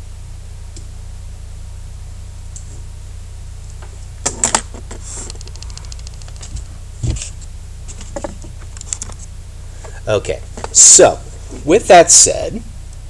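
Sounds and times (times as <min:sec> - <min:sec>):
steady low hum: 0:00.0 - 0:13.0
keyboard and mouse clicks: 0:05.2 - 0:06.6.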